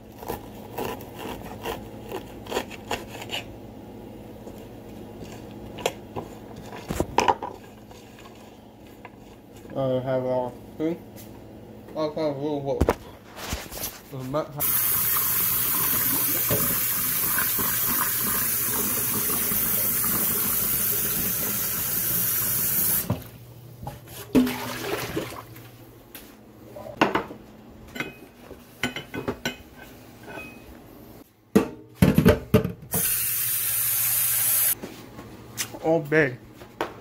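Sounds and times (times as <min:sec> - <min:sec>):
tap water running into pot: 0:14.6 - 0:23.3, 0:24.3 - 0:25.4.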